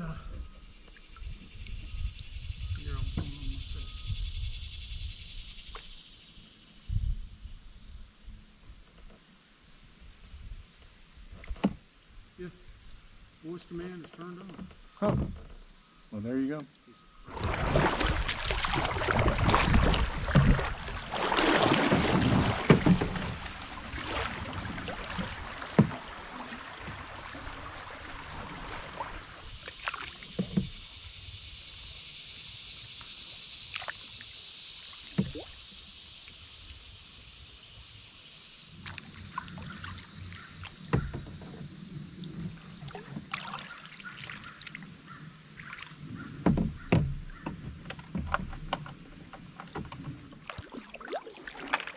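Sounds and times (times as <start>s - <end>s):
rushing water hiss: 0.0s - 7.6s, 10.0s - 51.9s
paddle knocking against canoe: 2.7s - 3.8s, 10.8s - 11.9s, 13.7s - 15.8s, 17.2s - 30.9s, 35.0s - 35.5s, 38.8s - 51.9s
paddle strokes: 17.2s - 37.2s, 37.8s - 51.9s
water splashing: 17.2s - 51.9s.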